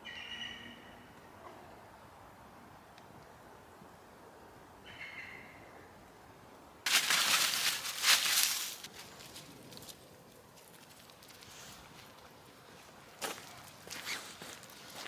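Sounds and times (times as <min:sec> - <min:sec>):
footsteps on leafy wet path: 0:06.9 - 0:10.0, 0:10.6 - 0:15.0.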